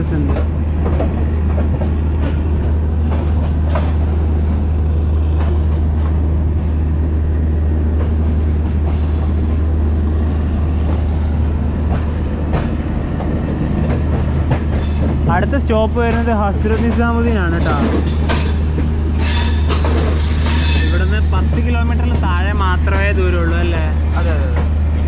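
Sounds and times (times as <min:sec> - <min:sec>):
train rumbling on rails: 0:00.0 - 0:25.0
wheels clicking over rail joints: 0:00.2 - 0:04.6, 0:10.8 - 0:22.6
high wheel squeal: 0:09.0 - 0:09.7.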